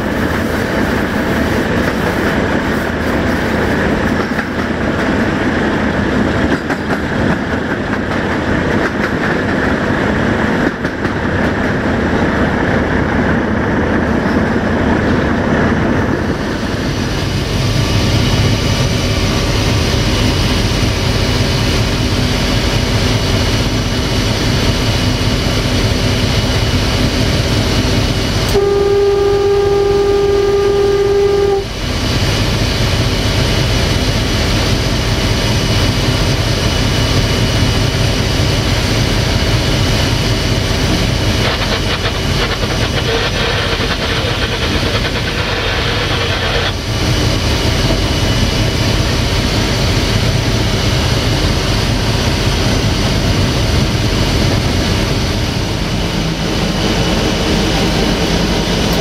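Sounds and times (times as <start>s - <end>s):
diesel locomotive engine running: 0.0s - 59.0s
train wheels rolling on track: 0.0s - 59.0s
locomotive horn blast: 28.5s - 31.8s.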